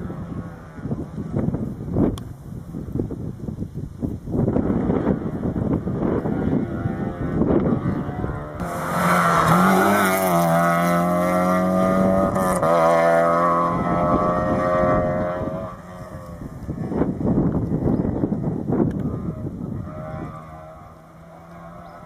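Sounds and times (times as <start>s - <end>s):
wind on microphone: 0.0s - 22.0s
rally car engine high revs: 6.0s - 16.2s, 19.0s - 22.0s.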